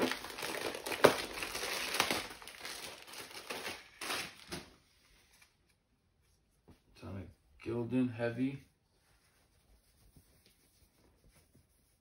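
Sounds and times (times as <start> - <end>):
wrapping paper crinkling: 0.0 - 4.8.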